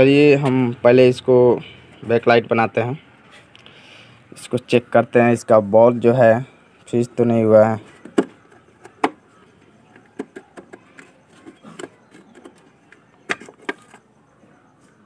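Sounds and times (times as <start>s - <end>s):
plastic clicks and knocks: 8.0s - 9.2s.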